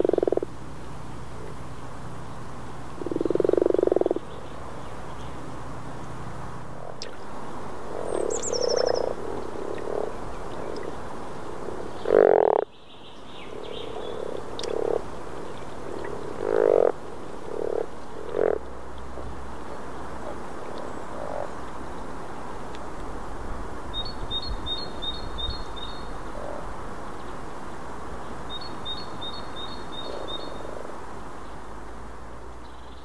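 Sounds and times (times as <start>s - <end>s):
frogs croaking: 0.0s - 0.6s, 2.9s - 22.5s, 23.9s - 27.5s, 28.1s - 31.7s.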